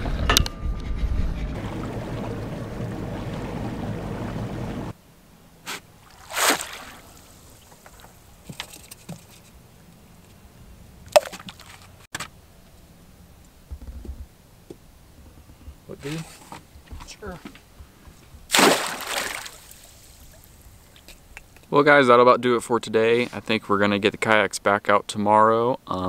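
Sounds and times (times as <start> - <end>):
wind and water rushing: 1.0 - 8.5, 18.4 - 21.0
splash of pot into water: 6.0 - 8.1, 18.5 - 20.2.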